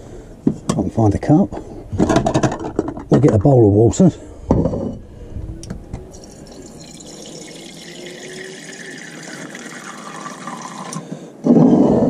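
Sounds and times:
tap water running into bowl: 0:06.1 - 0:11.0.

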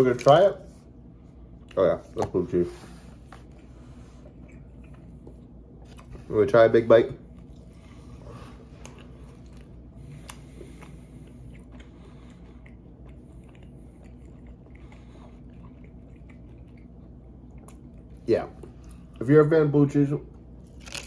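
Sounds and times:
low room hum: 0:00.0 - 0:21.0
person chewing food: 0:03.1 - 0:06.2, 0:07.2 - 0:19.2, 0:20.3 - 0:21.0.

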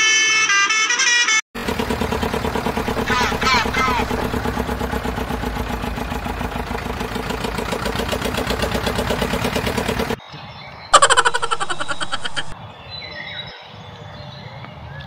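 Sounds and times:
tractor engine idling: 0:01.6 - 0:10.2.

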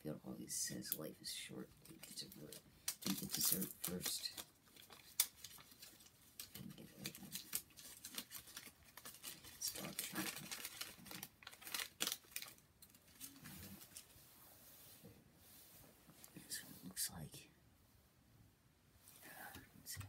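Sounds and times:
candy wrapper crinkling and tearing: 0:01.8 - 0:14.1.

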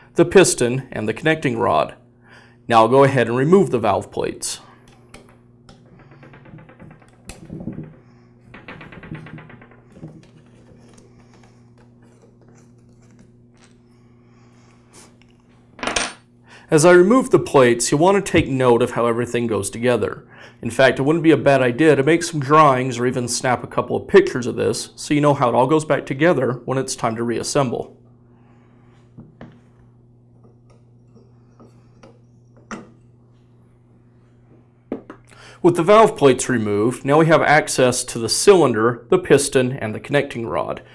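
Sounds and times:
steady low hum: 0:00.0 - 0:40.9.

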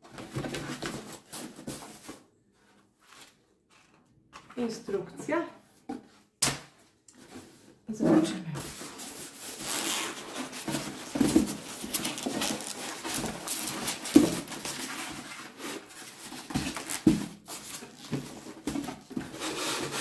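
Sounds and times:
plastic wrap rustling: 0:08.6 - 0:20.0
styrofoam rubbing cardboard: 0:19.1 - 0:20.0.

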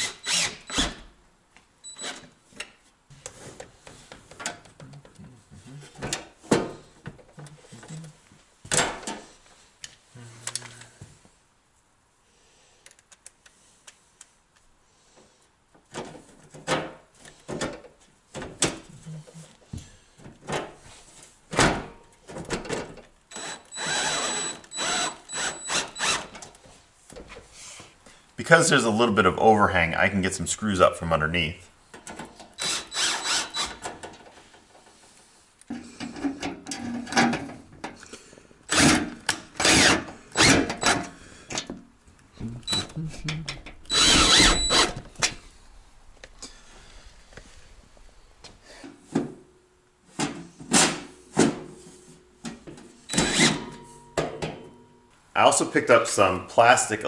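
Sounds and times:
drill spurts into metal: 0:00.0 - 0:01.1, 0:23.3 - 0:26.4, 0:32.6 - 0:34.1, 0:38.7 - 0:41.2, 0:43.8 - 0:45.5, 0:53.1 - 0:53.9
screw clicking on drill bit: 0:23.3 - 0:26.3, 0:32.6 - 0:33.8, 0:43.9 - 0:45.0, 0:53.1 - 0:53.5.

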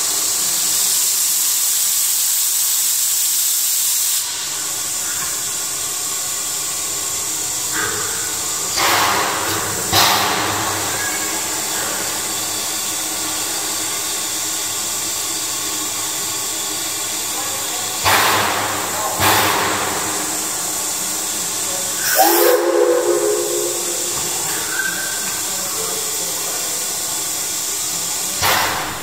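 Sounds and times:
steam hissing: 0:00.0 - 0:29.0
brief tonal sound: 0:22.1 - 0:25.2.

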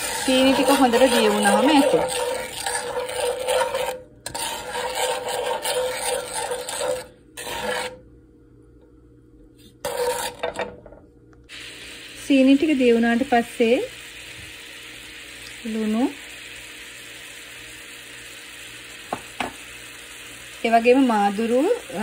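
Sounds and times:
wooden spatula scraping a pan: 0:00.0 - 0:08.0, 0:09.6 - 0:10.8.

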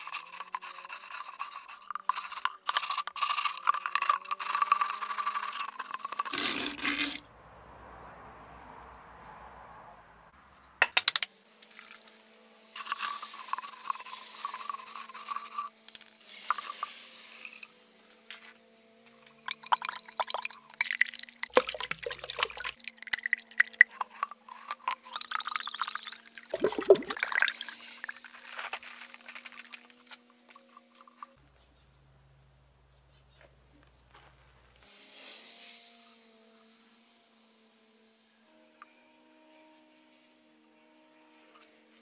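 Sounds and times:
scrubbing inside a horn: 0:00.0 - 0:07.2, 0:19.5 - 0:28.3
water swilled and poured: 0:00.0 - 0:07.2, 0:19.4 - 0:28.6.

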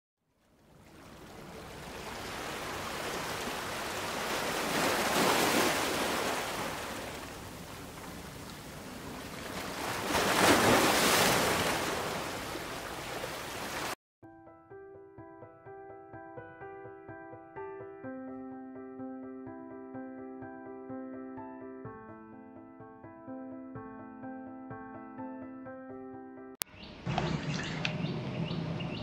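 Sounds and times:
surf washing over rocks: 0:00.8 - 0:14.0.

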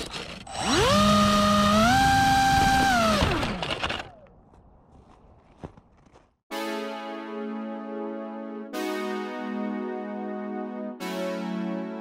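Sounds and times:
electric motor propeller whine: 0:00.1 - 0:04.2.

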